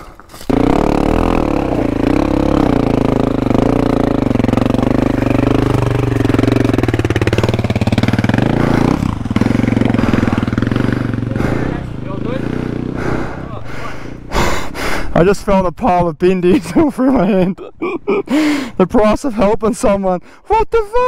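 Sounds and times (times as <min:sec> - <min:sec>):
dirt bike engine revving: 0:00.5 - 0:15.1.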